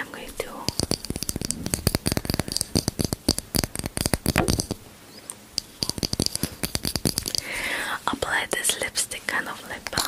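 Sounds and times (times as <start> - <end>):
fingernails tapping on plastic tube: 0.6 - 4.8, 5.6 - 7.4.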